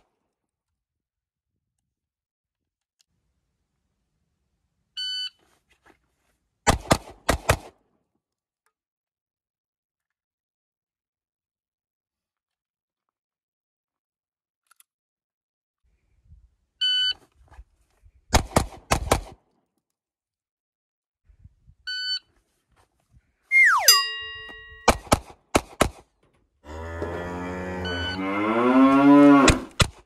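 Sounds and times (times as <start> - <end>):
loud falling tone: 23.5 - 24.0
long low rising call: 23.5 - 24.7
shot timer beeps: 23.5 - 24.9.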